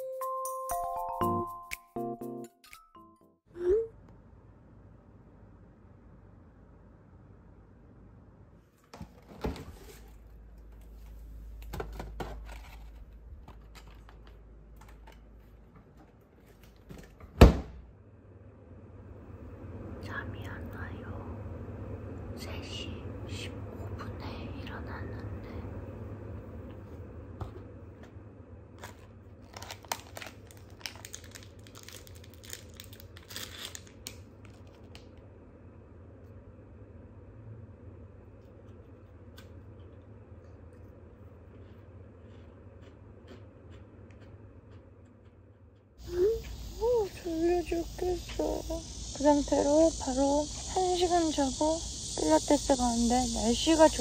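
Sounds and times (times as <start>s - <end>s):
refrigerator low hum: 3.5s - 54.0s
refrigerator door opening thud: 17.0s - 17.9s
refrigerator door shutting thump: 17.2s - 17.9s
snack wrapper crinkling and tearing: 28.8s - 35.2s.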